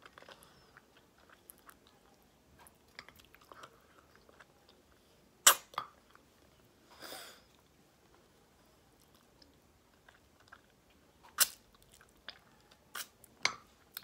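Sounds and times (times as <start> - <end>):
chewing: 0.0 - 5.0, 8.9 - 14.0
lip smacks: 11.3 - 12.4.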